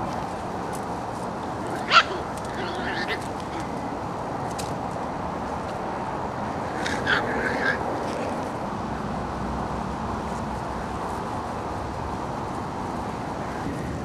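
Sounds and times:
steady background noise: 0.0s - 14.0s
puppies yipping: 1.6s - 3.7s, 6.8s - 7.8s.

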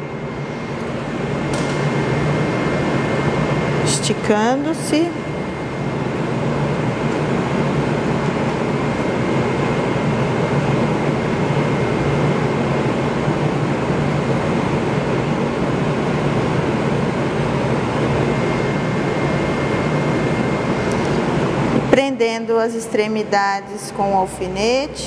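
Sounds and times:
ventilation rushing hiss: 0.0s - 25.0s
faint high whine: 14.8s - 25.0s.

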